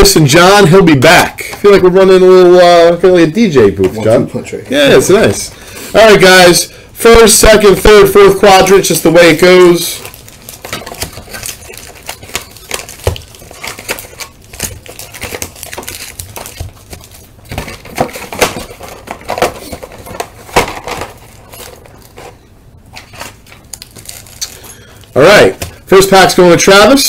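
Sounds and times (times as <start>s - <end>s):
foil packs crinkling: 7.3s - 27.0s.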